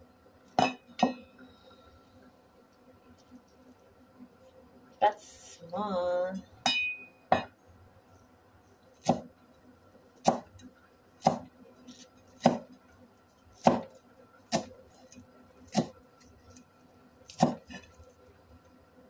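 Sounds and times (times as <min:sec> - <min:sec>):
knife chopping on wooden board: 0:09.0 - 0:09.3, 0:10.2 - 0:10.6, 0:11.2 - 0:11.5, 0:12.3 - 0:12.7, 0:13.6 - 0:14.7, 0:15.7 - 0:16.0, 0:17.3 - 0:17.9.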